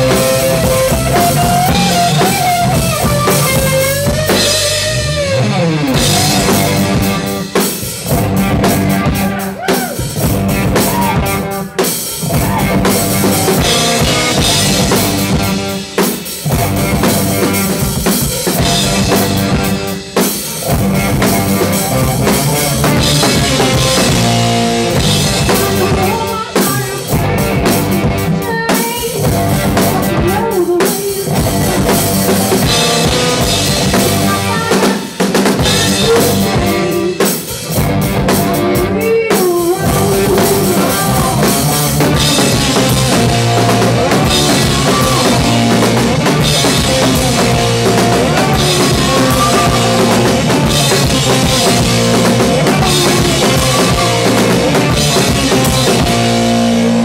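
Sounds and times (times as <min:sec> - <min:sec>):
drum kit beat: 0:00.0 - 0:57.0
live rock band playing: 0:00.0 - 0:57.0.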